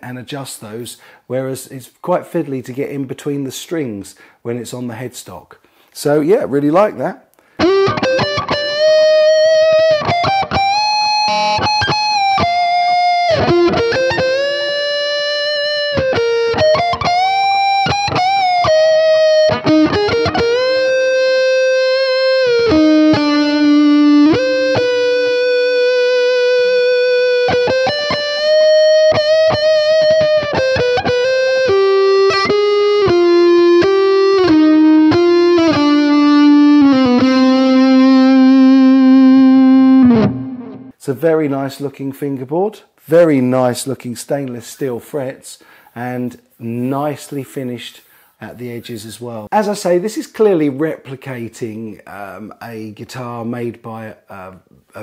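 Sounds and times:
electric guitar solo: 0:07.5 - 0:41.0.

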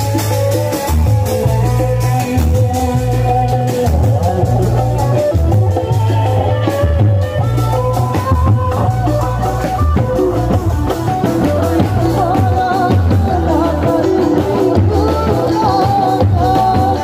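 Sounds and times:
drums: 0:00.0 - 0:17.0
person singing: 0:11.2 - 0:17.0.

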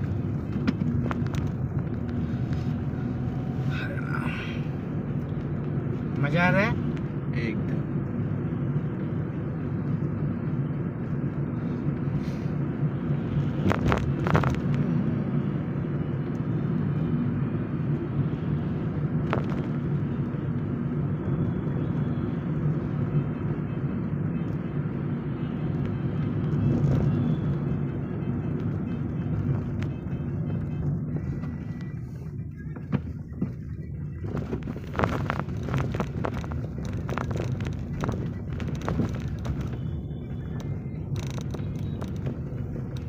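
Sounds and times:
car engine and road rumble: 0:00.0 - 0:43.0.

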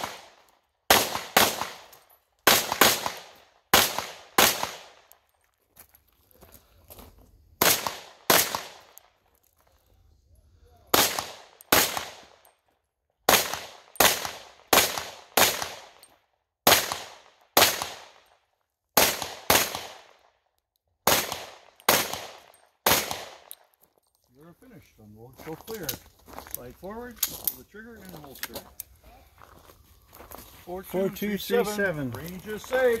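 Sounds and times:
pistol shots: 0:00.0 - 0:05.1, 0:07.6 - 0:09.0, 0:10.9 - 0:12.4, 0:13.3 - 0:16.0, 0:16.6 - 0:18.3, 0:19.0 - 0:20.2, 0:21.0 - 0:23.6.

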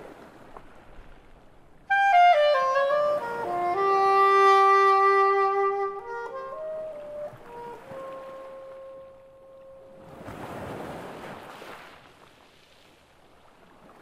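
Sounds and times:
sea waves: 0:00.0 - 0:14.0
soprano saxophone: 0:01.9 - 0:10.1.

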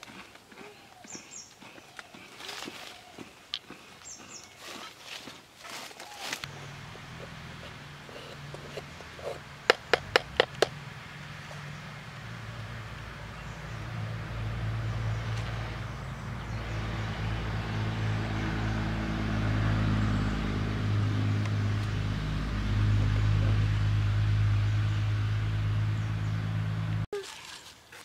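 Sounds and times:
motor engine humming: 0:06.4 - 0:27.1.

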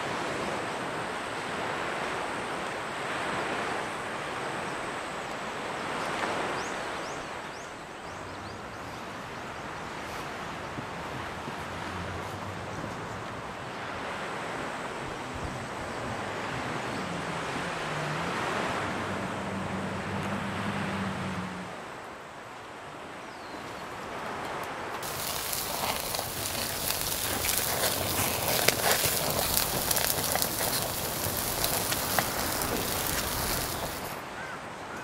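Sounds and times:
surf at the shore: 0:00.0 - 0:35.0
wind: 0:00.0 - 0:35.0
meat sizzling on a grill: 0:25.0 - 0:34.2.

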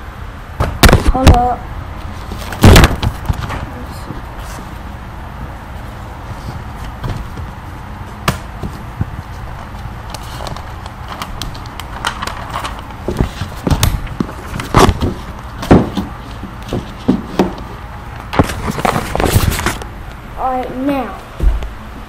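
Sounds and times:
recording device handling noise: 0:00.6 - 0:20.2
heavy knocks and thumps: 0:13.0 - 0:17.7, 0:21.3 - 0:21.8.

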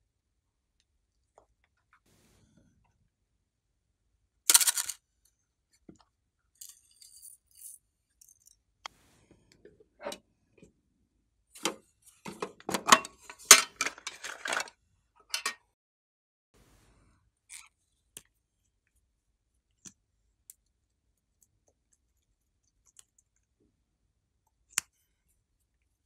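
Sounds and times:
small hard objects clattering: 0:04.5 - 0:05.0, 0:12.7 - 0:14.7.

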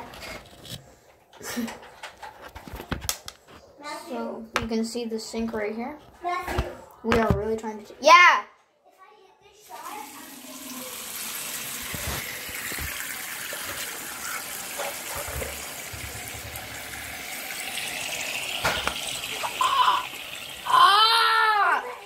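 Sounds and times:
water splashing into sink: 0:09.6 - 0:22.0.

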